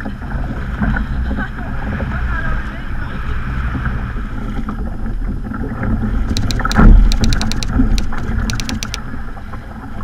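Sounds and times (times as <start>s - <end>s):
sharp clicks: 6.3s - 9.0s.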